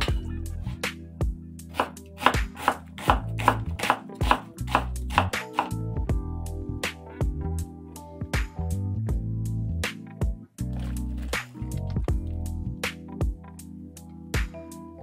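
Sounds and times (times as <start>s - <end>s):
background music: 0.0s - 15.0s
knife chopping on wooden board: 1.7s - 5.8s.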